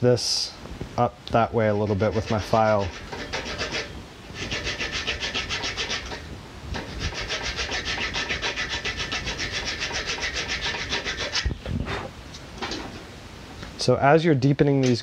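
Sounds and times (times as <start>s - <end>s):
file rasping on wood: 1.7s - 11.6s.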